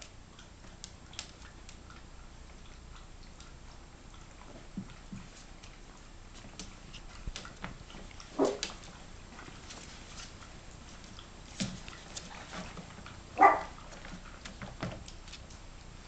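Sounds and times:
puppy yapping: 8.3 - 8.7, 13.4 - 13.8.

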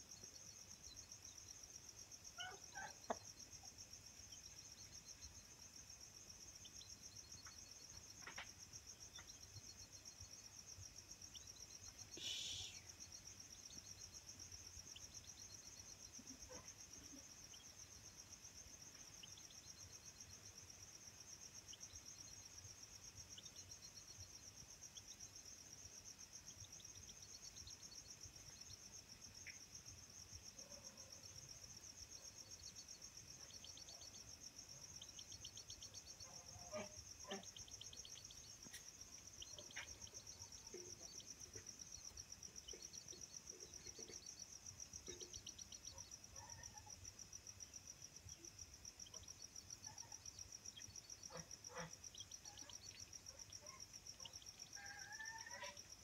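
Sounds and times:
insects trilling: 0.0 - 56.0
short insect chirps: 11.2 - 56.0.

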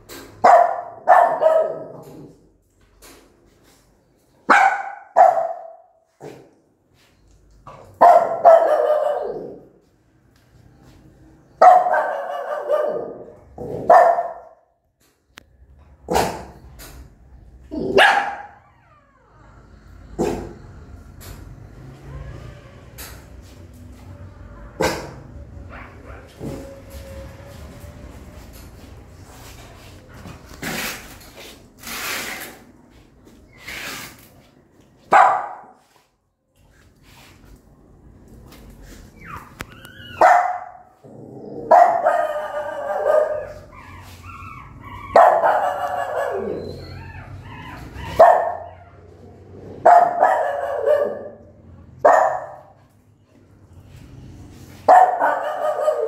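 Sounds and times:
small dog barking: 0.4 - 2.0, 4.5 - 6.4, 8.0 - 9.6, 11.6 - 14.6, 17.8 - 18.6, 35.1 - 35.8, 40.1 - 40.9, 41.7 - 43.6, 45.1 - 46.7, 48.0 - 48.8, 49.8 - 51.4, 52.0 - 52.8, 54.9 - 56.0.

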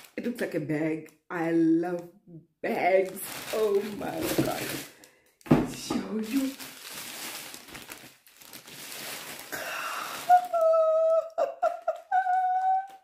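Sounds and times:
plastic wrapping crinkling: 2.8 - 13.0.

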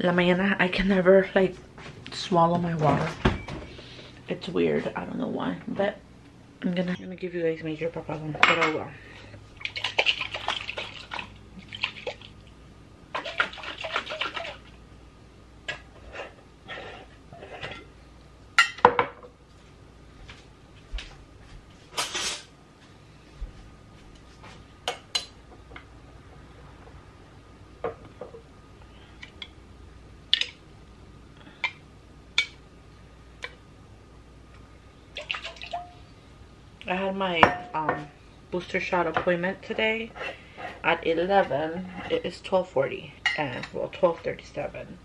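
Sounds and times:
liquid sloshing in container: 9.6 - 12.4, 13.1 - 14.7.

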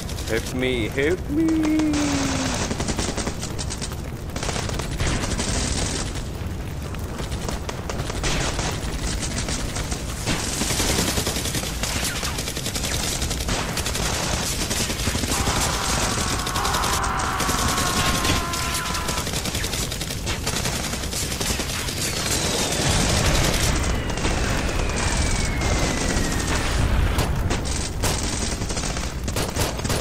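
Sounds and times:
automatic machine gun fire: 7.4 - 30.0
faint high falling whine: 23.2 - 27.2.

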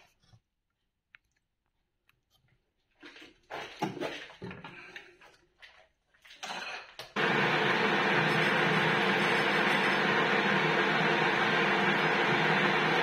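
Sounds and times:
lathe spindle running: 7.2 - 13.0.

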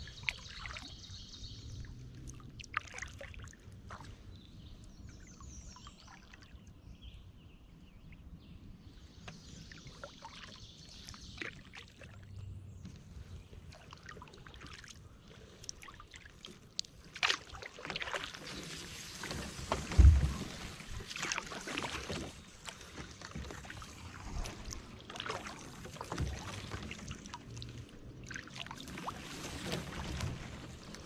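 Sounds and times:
kayak paddle splashes: 0.0 - 7.0, 8.9 - 31.0.

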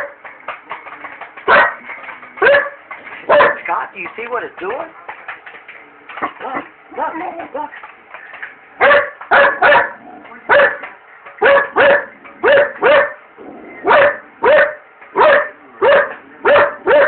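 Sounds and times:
dog barking: 1.5 - 1.8, 2.4 - 3.6, 8.8 - 13.2, 13.8 - 17.0.

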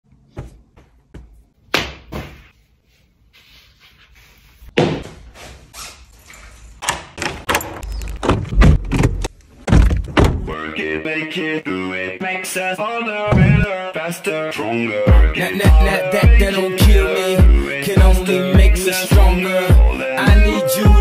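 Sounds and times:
heavy low thumps: 13.3 - 13.7.

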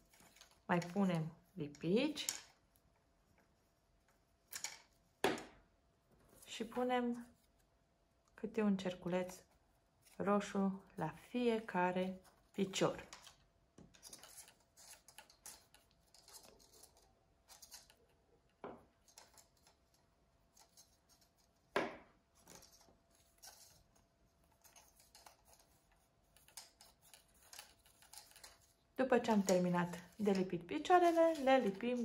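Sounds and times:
paper rustling and tapping: 24.6 - 32.0.

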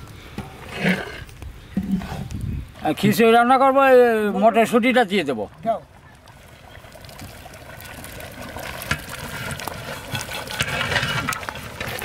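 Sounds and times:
rice frying in oil sizzling: 6.1 - 12.0.

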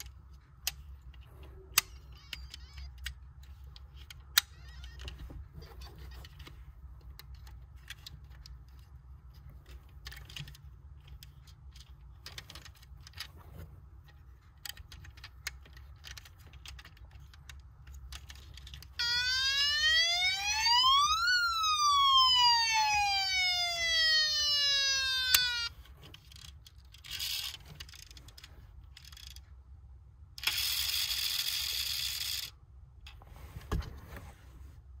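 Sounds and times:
toy handling clicks: 0.0 - 5.2, 24.1 - 29.5, 30.4 - 32.6
toy siren wail: 1.9 - 3.0, 19.0 - 25.7.

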